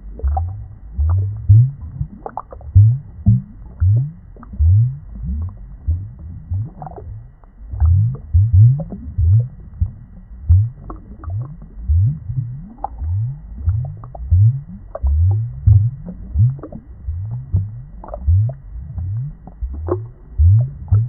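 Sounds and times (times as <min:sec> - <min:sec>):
muffled underwater bubbling: 0:00.0 - 0:21.0.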